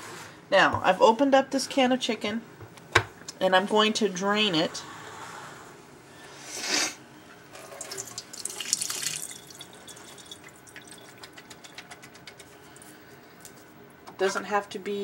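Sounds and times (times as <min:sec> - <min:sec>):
liquid draining into metal sink: 0:07.5 - 0:11.2
trickling and dripping: 0:07.6 - 0:13.6.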